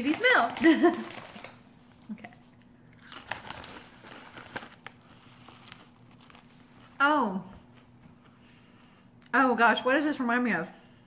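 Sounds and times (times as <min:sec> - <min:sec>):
foil snack bag crinkling: 0:00.0 - 0:02.2, 0:02.9 - 0:07.0
crunching of chip being chewed: 0:02.8 - 0:06.6.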